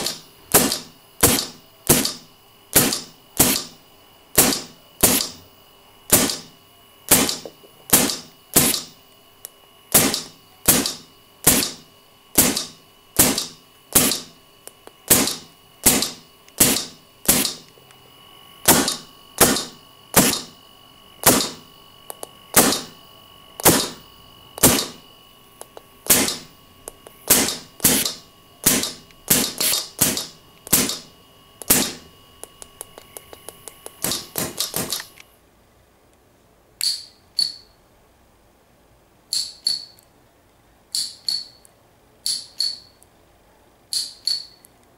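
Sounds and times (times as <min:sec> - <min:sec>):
airgun valve snapping: 0:00.0 - 0:02.2, 0:02.8 - 0:03.8, 0:04.4 - 0:05.4, 0:06.1 - 0:06.5, 0:07.1 - 0:11.8, 0:12.4 - 0:17.8, 0:18.7 - 0:20.5, 0:21.2 - 0:22.9, 0:23.6 - 0:24.0, 0:25.6 - 0:35.2.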